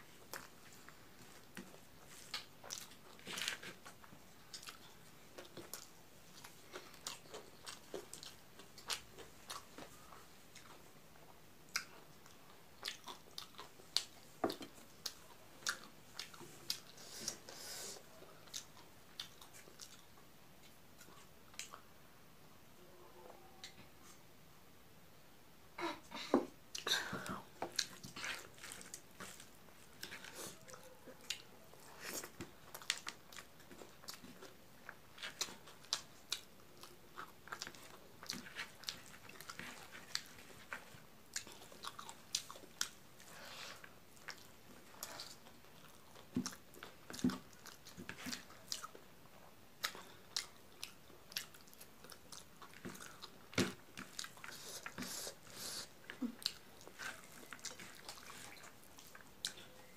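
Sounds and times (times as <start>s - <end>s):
chewing and wet mouth smacks: 11.7s - 17.0s, 18.4s - 21.9s, 27.6s - 49.0s, 49.8s - 59.8s.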